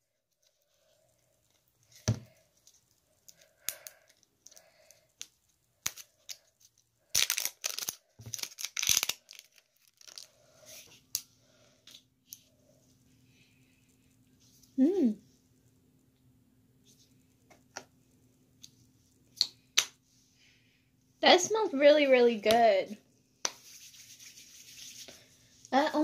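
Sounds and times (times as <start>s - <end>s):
plastic seal tearing and crinkling: 7.1s - 10.3s.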